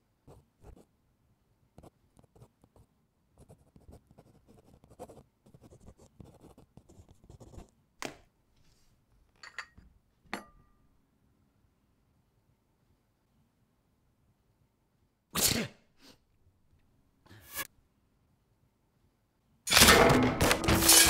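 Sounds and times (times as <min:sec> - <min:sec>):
pen scratching on paper: 0:01.8 - 0:07.7
sharp clicks and clinks: 0:09.4 - 0:10.6.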